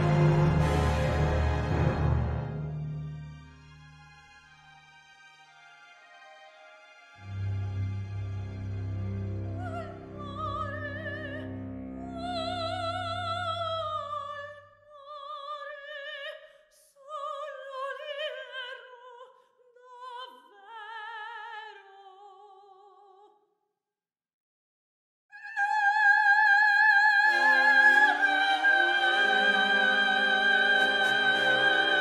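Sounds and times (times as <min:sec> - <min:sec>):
operatic soprano singing: 0:09.5 - 0:23.3, 0:25.4 - 0:32.0.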